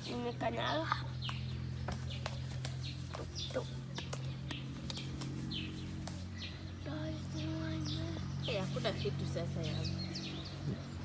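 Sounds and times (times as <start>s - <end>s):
bird chirping: 0.0s - 11.0s
steady low hum: 0.0s - 11.0s.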